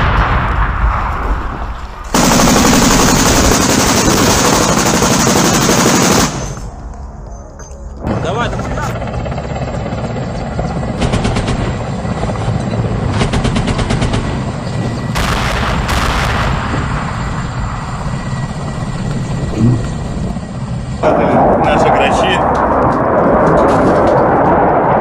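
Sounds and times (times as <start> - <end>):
bursts of rapid gunshots: 2.1 - 6.6
helicopter rotor rumble: 2.1 - 25.0.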